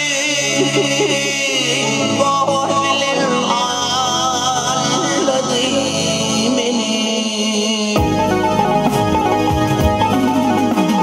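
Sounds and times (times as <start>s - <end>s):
man singing: 0.0s - 8.9s
electric guitar: 0.0s - 11.0s
synthesizer keyboards: 0.2s - 11.0s
drums: 4.9s - 11.0s.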